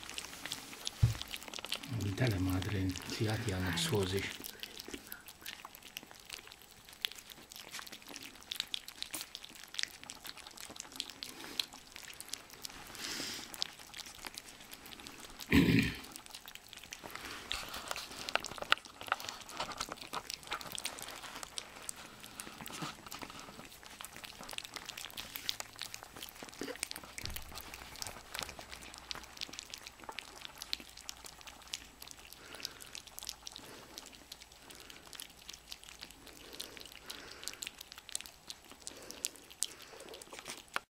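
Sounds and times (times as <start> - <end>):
puppies lapping and chewing food: 0.0 - 40.9
wet licking clicks and smacks: 16.0 - 40.9.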